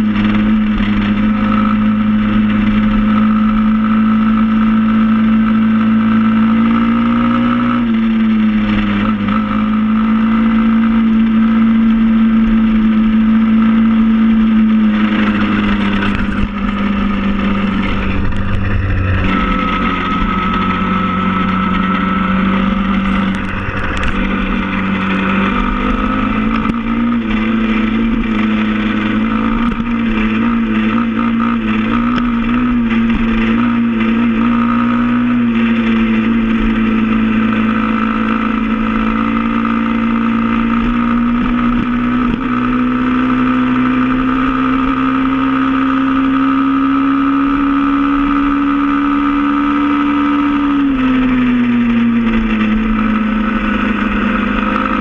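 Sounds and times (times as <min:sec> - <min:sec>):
motorbike engine running: 0:00.0 - 0:55.0.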